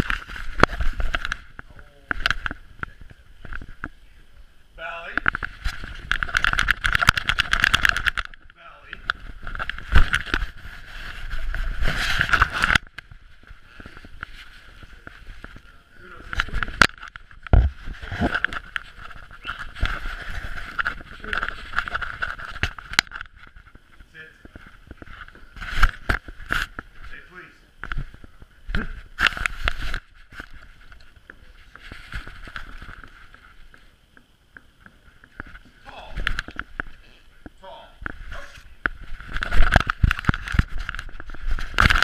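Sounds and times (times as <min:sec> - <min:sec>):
camera clicks knocks and rubbing: 0:05.2 - 0:08.5
fur rubbing against camera: 0:09.2 - 0:16.7.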